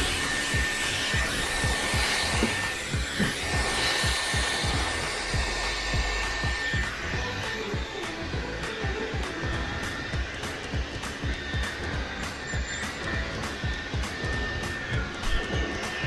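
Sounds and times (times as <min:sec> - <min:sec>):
hair dryer air rushing: 0:00.0 - 0:16.0
high motor whine: 0:00.0 - 0:16.0.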